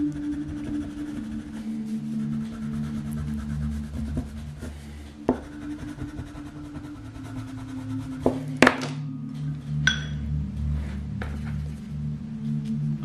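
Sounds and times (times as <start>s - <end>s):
marker scratching on paper: 0.0s - 8.4s.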